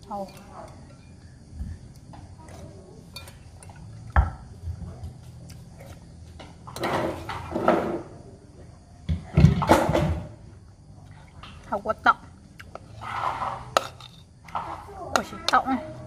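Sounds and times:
metal spoon clinking on plate: 0:03.1 - 0:03.8.

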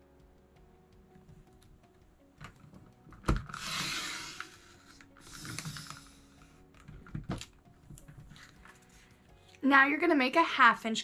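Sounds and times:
trimmer blade hissing along paper: 0:03.6 - 0:06.3.

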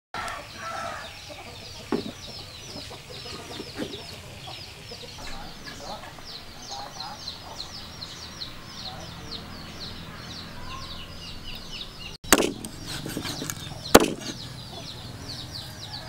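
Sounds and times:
chickens calling: 0:00.2 - 0:16.0
chicken clucks: 0:00.3 - 0:07.7, 0:12.7 - 0:15.0
sharp knock: 0:12.3 - 0:13.3, 0:13.9 - 0:14.4.

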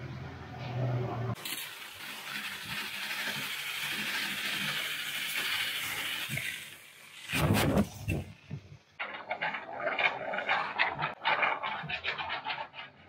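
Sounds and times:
pressure-washer jet hissing: 0:01.4 - 0:08.0.

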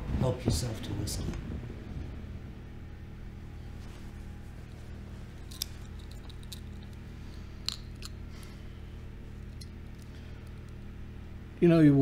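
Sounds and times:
steady low hum: 0:00.0 - 0:12.0
pocket watch chain clicks: 0:05.5 - 0:07.0.

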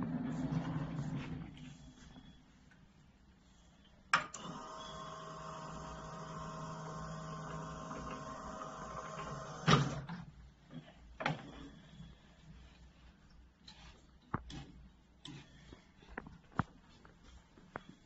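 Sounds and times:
electric lift motor humming: 0:04.3 - 0:10.1.

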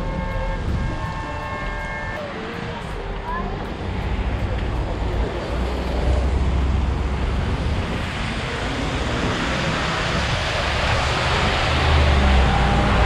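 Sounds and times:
wind on microphone: 0:00.0 - 0:03.0, 0:06.3 - 0:13.0.

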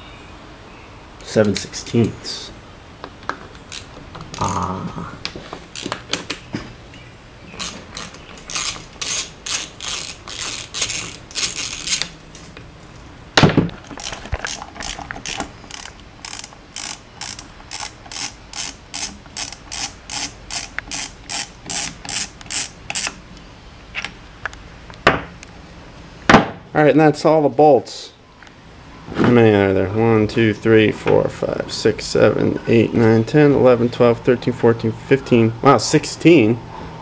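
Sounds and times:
ratchet wrench clicking: 0:05.8 - 0:06.0, 0:07.6 - 0:12.5, 0:14.0 - 0:23.2.

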